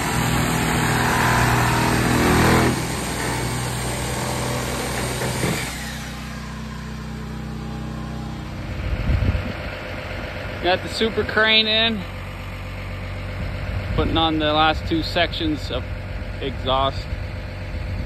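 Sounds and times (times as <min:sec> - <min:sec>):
engine running: 0:00.0 - 0:18.0.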